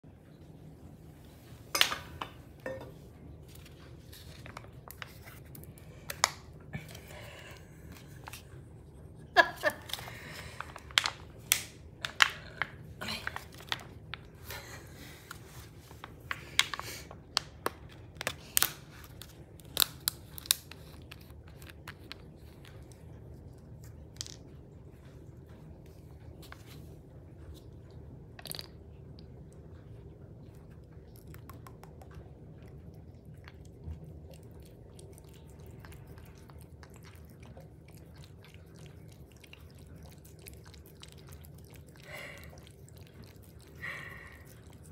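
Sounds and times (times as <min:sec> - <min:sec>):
plastic pouch crinkling and clicking: 0:16.5 - 0:22.2.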